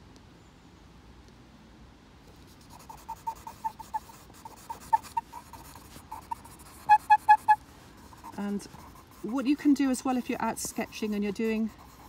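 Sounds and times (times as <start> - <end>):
pencil scratching on paper: 2.6 - 12.0.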